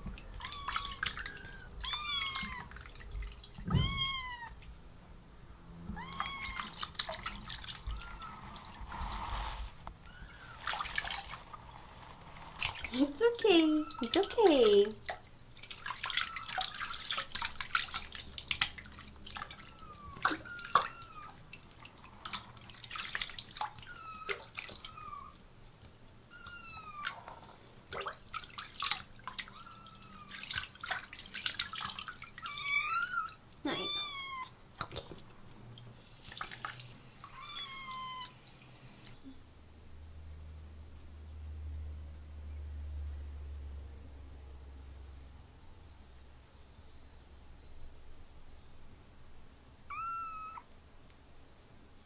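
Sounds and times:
water splashing and dripping: 0:00.0 - 0:03.9, 0:06.1 - 0:09.2, 0:10.6 - 0:11.6, 0:12.6 - 0:25.0, 0:27.0 - 0:32.6, 0:34.7 - 0:36.9
low steady hum: 0:00.0 - 0:52.0
kitten mewing: 0:03.7 - 0:04.6, 0:06.0 - 0:06.8, 0:32.5 - 0:34.5, 0:49.9 - 0:50.7.

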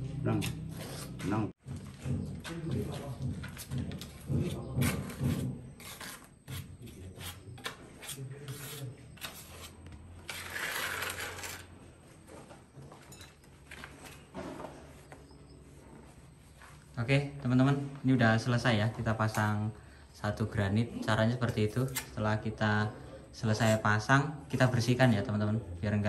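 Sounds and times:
trowel scraping tile and brick: 0:00.3 - 0:01.5, 0:03.5 - 0:11.8.

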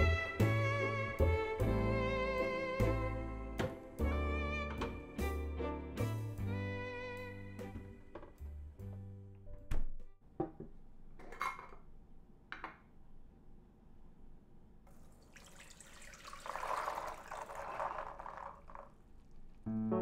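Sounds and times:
music: 0:00.0 - 0:10.2, 0:19.7 - 0:20.0
water and beans pouring into strainer: 0:15.0 - 0:19.0.

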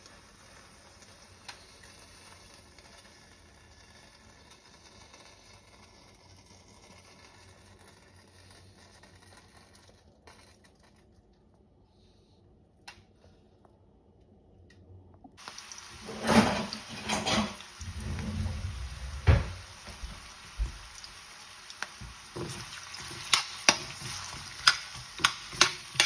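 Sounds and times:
faint room hiss: 0:10.8 - 0:26.0.

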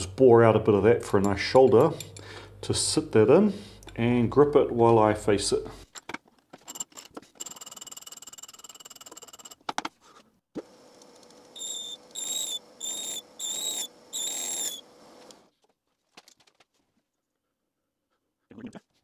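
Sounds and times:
boring bar squealing in steel: 0:11.6 - 0:14.8
lathe high-pitched whine: 0:11.6 - 0:14.8.

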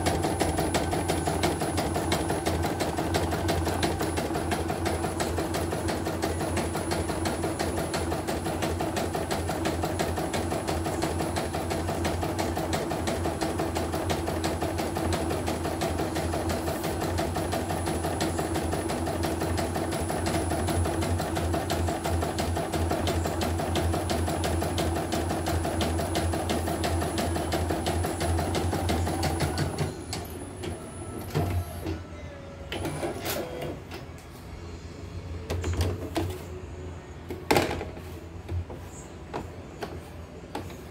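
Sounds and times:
embroidery machine stitching: 0:00.0 - 0:32.0.

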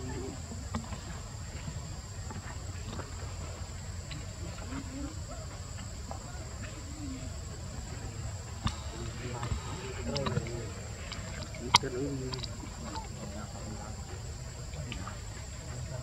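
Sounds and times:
high-pitched insect drone: 0:00.0 - 0:16.0.

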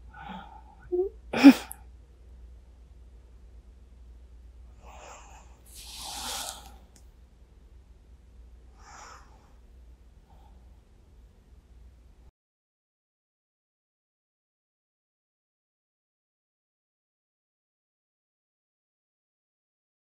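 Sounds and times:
breathy exhale: 0:04.8 - 0:06.8, 0:08.8 - 0:09.6.

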